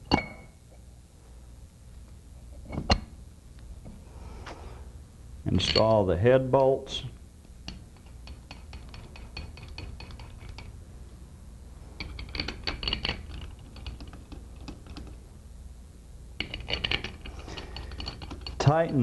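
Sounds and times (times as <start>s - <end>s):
metal bolts clicking and clinking: 5.5s - 6.1s, 7.6s - 10.7s, 12.0s - 15.2s, 16.4s - 19.0s.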